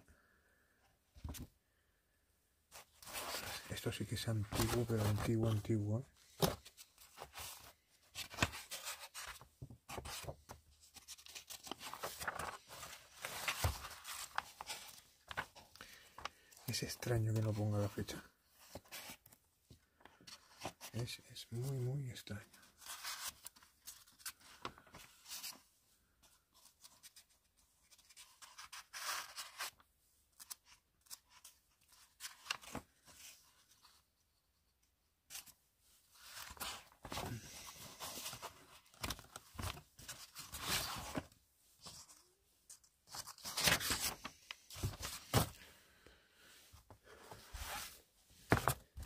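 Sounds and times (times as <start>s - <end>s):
old paper rustling and crackling: 2.8s - 25.6s, 36.2s - 45.7s, 47.1s - 49.0s.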